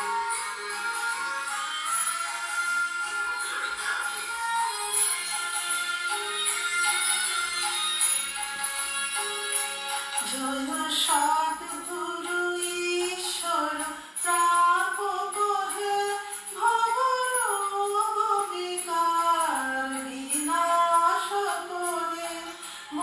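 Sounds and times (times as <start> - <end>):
musical accompaniment: 0.0 - 16.6
woman singing devotional song: 9.9 - 23.0.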